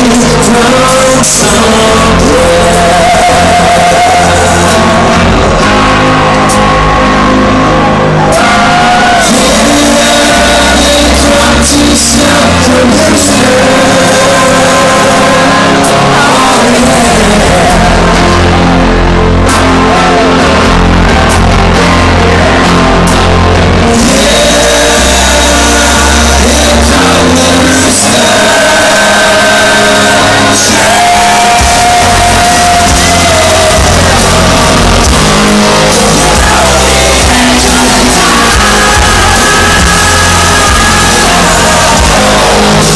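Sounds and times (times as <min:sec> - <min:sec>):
person singing: 0:00.0 - 0:42.9
rock band playing loud: 0:00.0 - 0:42.9.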